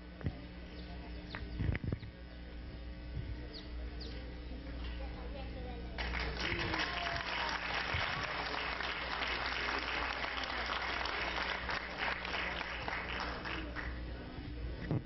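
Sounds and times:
audience applauding: 0:06.0 - 0:14.0.

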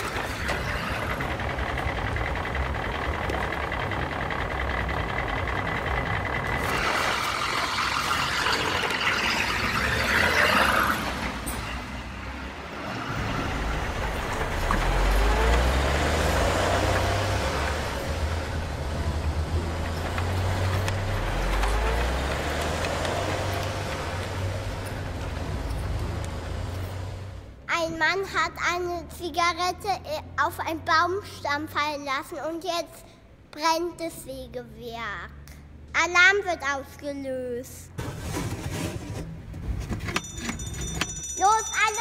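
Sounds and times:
heavy truck engine revving: 0:00.0 - 0:28.0.

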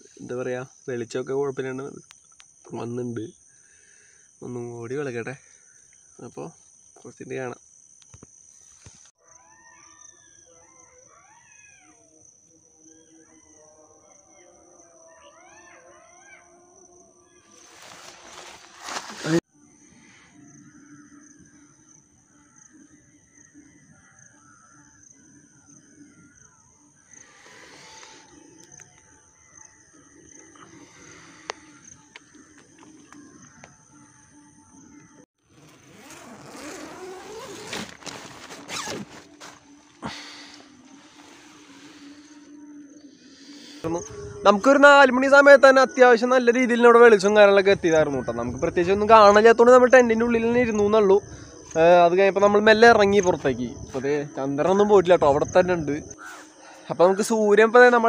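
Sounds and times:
jackals howling in chorus: 0:09.2 - 0:17.6
nylon fabric rustling: 0:17.5 - 0:19.4, 0:35.6 - 0:42.2
tent zip pulled open: 0:17.6 - 0:19.4, 0:35.4 - 0:42.4.

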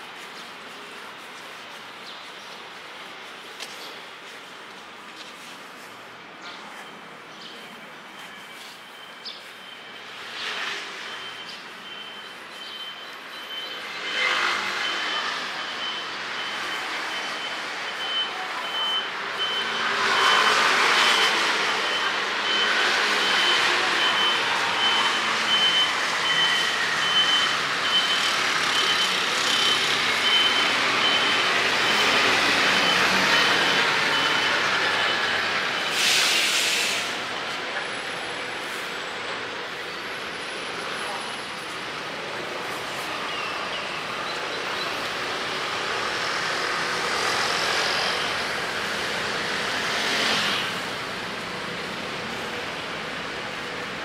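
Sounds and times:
street noise: 0:00.0 - 0:54.0
reversing alarm beeping: 0:08.1 - 0:36.4, 0:43.5 - 0:50.9
engine noise: 0:13.3 - 0:54.0.

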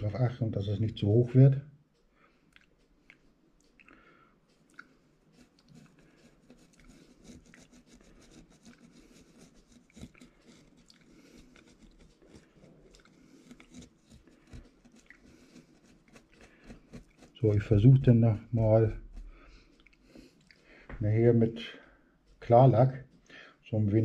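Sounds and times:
hand tool clicking on paste: 0:04.8 - 0:18.2.

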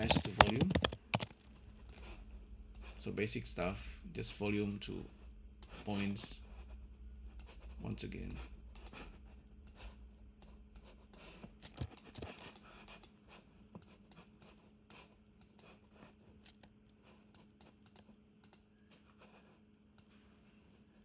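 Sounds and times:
keyboard typing: 0:00.0 - 0:02.1.

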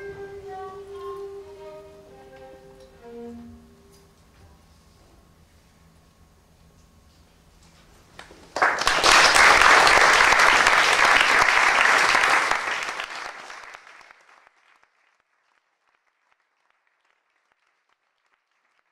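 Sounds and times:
audience applause: 0:08.2 - 0:18.9.

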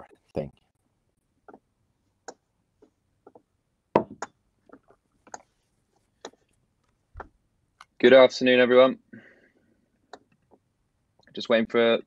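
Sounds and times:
clicks and light taps: 0:00.0 - 0:08.0, 0:10.0 - 0:11.4.

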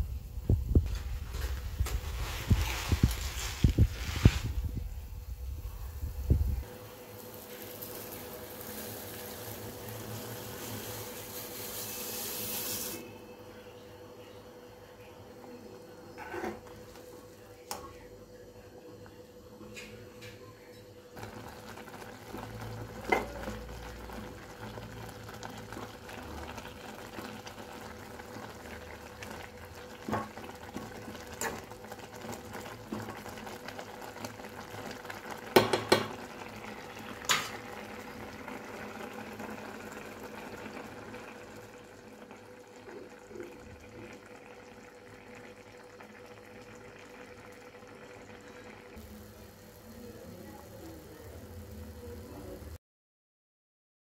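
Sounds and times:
faint hum: 0:00.0 - 0:11.5, 0:12.9 - 0:35.2.

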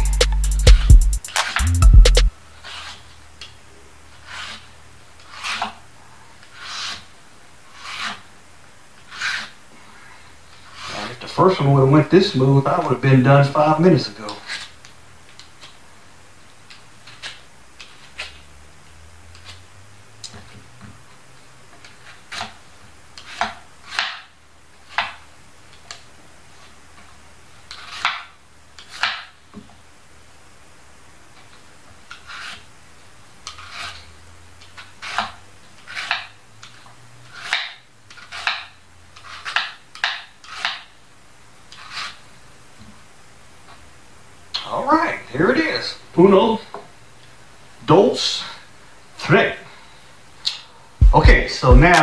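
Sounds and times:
knife scraping plantain peel: 0:02.5 - 0:03.5, 0:04.1 - 0:08.3, 0:09.0 - 0:09.6, 0:10.5 - 0:11.2, 0:14.3 - 0:15.8, 0:17.0 - 0:18.4, 0:19.3 - 0:19.6, 0:21.8 - 0:25.2, 0:26.5 - 0:29.4, 0:31.4 - 0:32.7, 0:33.4 - 0:40.9, 0:41.7 - 0:42.3.

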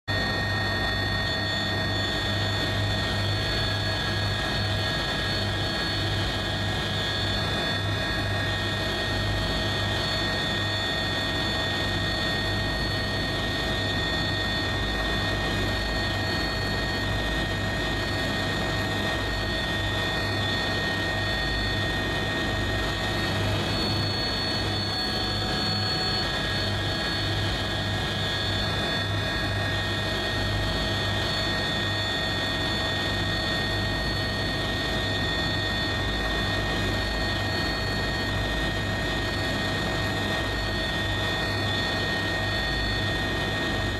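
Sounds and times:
helicopter engine whine: 0:00.1 - 0:43.9.

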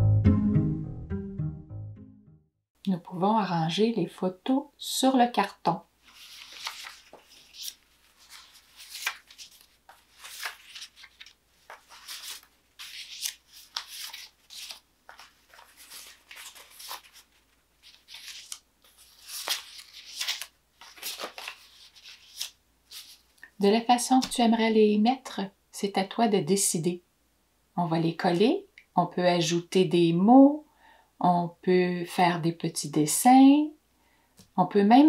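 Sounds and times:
photographs rustling and crinkling: 0:06.0 - 0:23.4.

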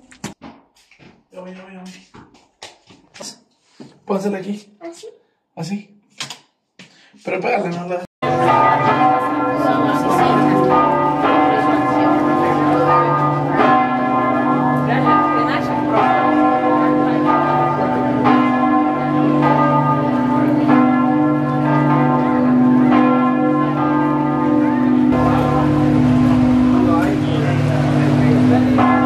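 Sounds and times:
church bells ringing: 0:08.2 - 0:29.0.

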